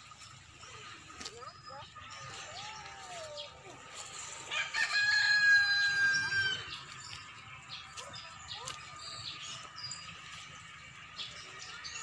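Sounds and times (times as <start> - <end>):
rooster crowing: 4.5 - 6.8.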